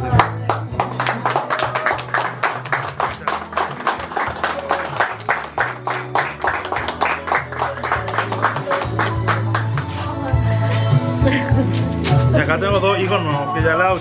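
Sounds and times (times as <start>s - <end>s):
people clapping: 0.0s - 10.2s
music with low bass notes: 0.0s - 14.0s.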